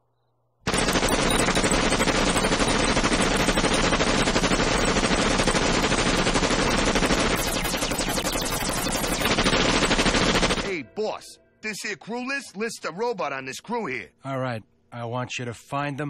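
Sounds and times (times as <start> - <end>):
machine guns firing rapidly: 0.7 - 10.8.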